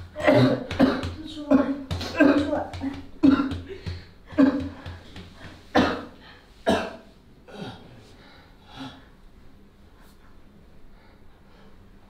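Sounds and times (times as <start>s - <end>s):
woman sobbing and coughing: 0.1s - 4.8s.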